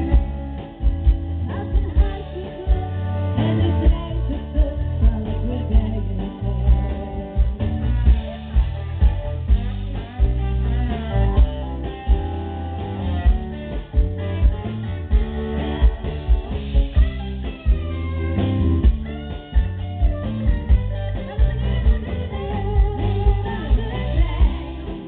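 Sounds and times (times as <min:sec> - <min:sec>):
bass guitar: 0:00.0 - 0:25.0
drum kit beat: 0:00.0 - 0:25.0
electric guitar: 0:00.0 - 0:25.0.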